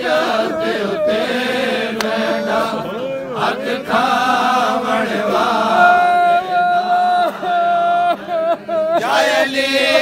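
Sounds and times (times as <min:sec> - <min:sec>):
men chanting a lament: 0:00.0 - 0:10.0.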